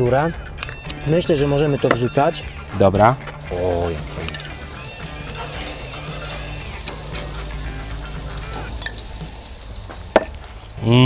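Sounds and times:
metal tongs click: 0.6 - 1.0, 4.2 - 4.6
vegetables sizzling on grill: 3.3 - 11.0.

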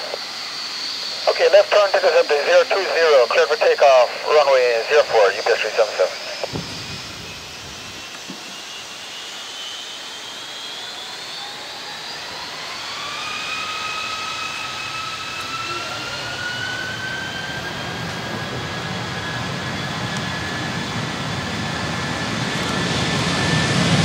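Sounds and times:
jet engines spooling up: 0.0 - 24.0.

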